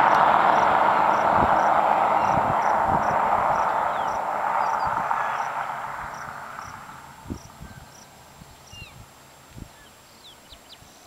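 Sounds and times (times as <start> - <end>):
rushing noise: 0.0 - 8.4.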